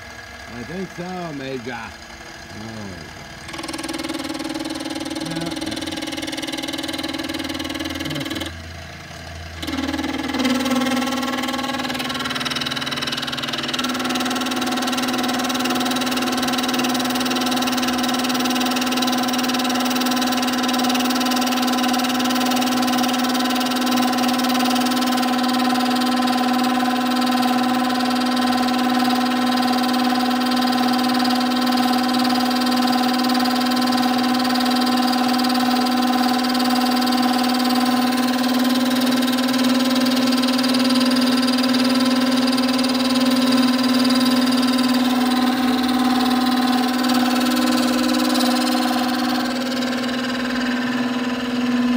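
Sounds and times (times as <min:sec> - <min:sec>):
milling machine cutting metal: 0:00.0 - 0:51.9.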